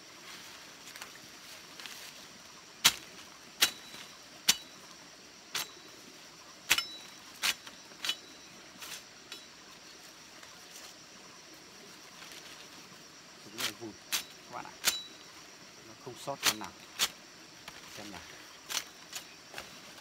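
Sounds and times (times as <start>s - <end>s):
machete chopping branch: 2.8s - 4.8s, 13.6s - 15.1s, 16.4s - 17.9s.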